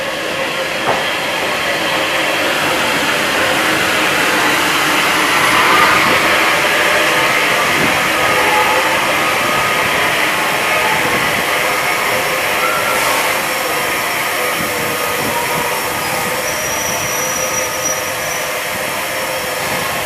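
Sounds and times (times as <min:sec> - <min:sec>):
steam hissing: 0:00.0 - 0:20.0
train coaches rolling past: 0:00.0 - 0:20.0.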